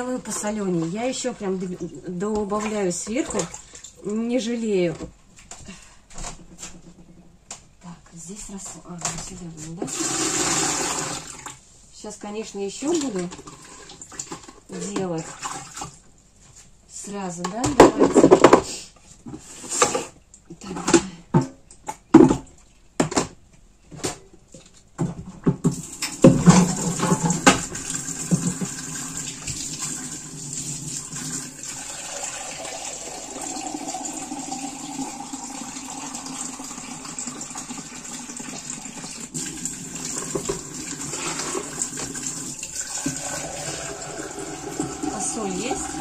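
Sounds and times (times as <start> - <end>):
tap water running into bucket: 9.8 - 11.6, 12.8 - 16.0, 25.6 - 46.0
plastic bucket and lid knocking: 17.6 - 18.7, 20.8 - 23.4, 25.0 - 28.9.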